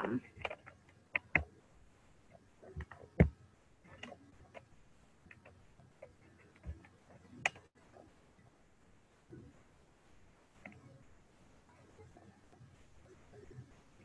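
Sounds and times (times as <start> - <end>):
clicks and taps at a desk: 0.4 - 1.5, 2.8 - 4.7.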